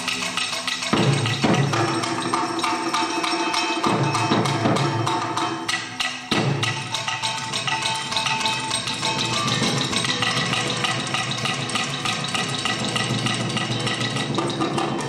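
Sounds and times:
sharp percussion strikes: 0.0s - 15.0s.

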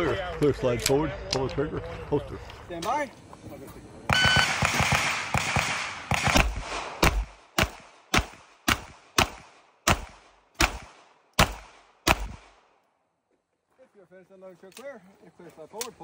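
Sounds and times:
handgun shots echoing: 4.1s - 12.7s.

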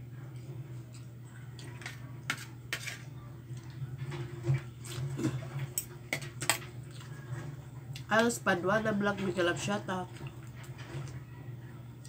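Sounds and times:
cutlery clinking on a plate: 5.2s - 6.8s.

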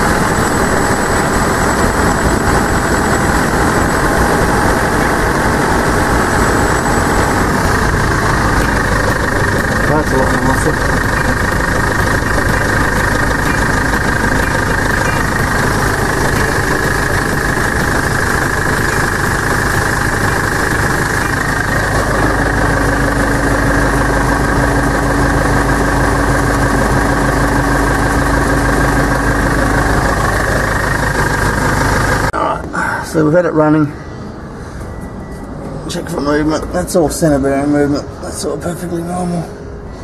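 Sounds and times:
vehicle mechanical running sound: 0.0s - 32.7s
steady hum: 0.0s - 37.0s.

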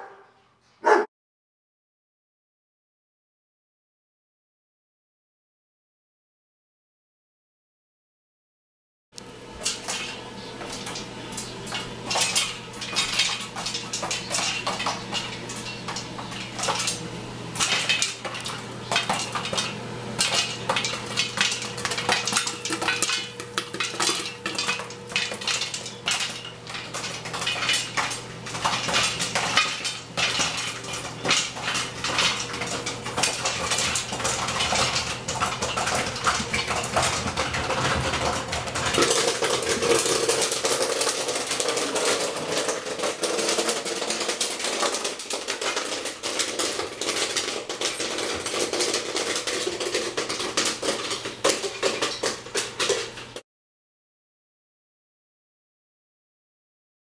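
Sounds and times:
popcorn popping in a metal pot: 9.2s - 53.4s.

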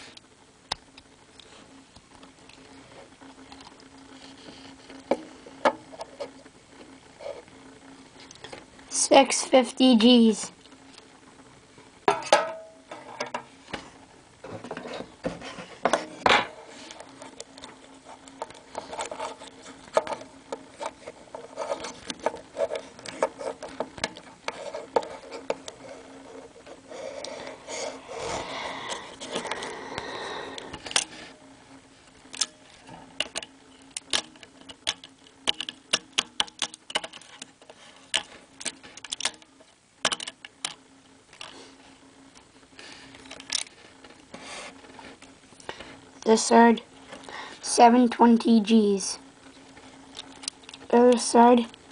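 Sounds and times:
plastic rubbing and scraping: 14.4s - 29.7s.

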